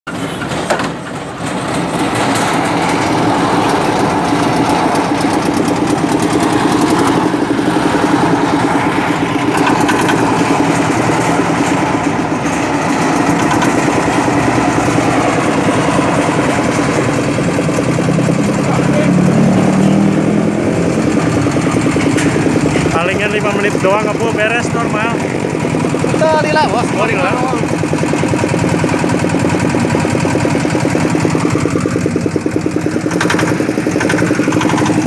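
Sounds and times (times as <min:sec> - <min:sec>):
diesel engine chugging: 0:00.1 - 0:35.0.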